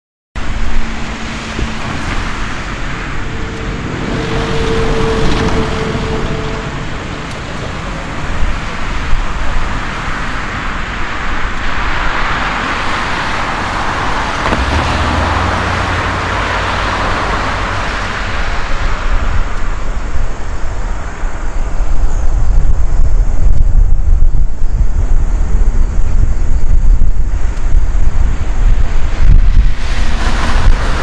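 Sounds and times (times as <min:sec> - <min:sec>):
deep low rumble of aircraft: 0:00.4 - 0:09.8, 0:13.5 - 0:31.0
jet engines rushing: 0:00.4 - 0:21.4.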